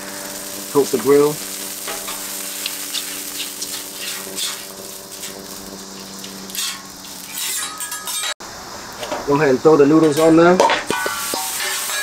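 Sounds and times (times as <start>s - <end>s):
oil sizzling on griddle: 0.0s - 12.0s
metal spatula scraping: 1.8s - 8.4s, 10.9s - 12.0s.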